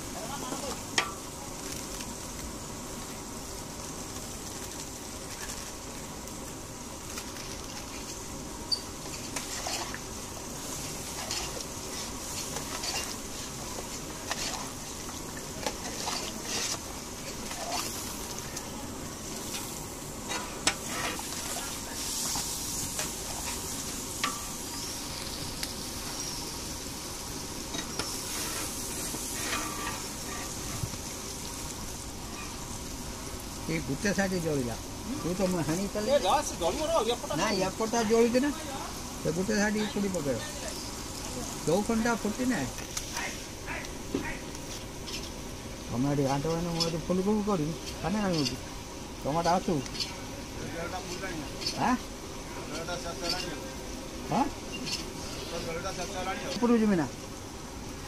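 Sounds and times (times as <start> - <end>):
chutney simmering and sizzling: 0.0 - 58.0
ladle striking a pan: 24.2 - 24.8.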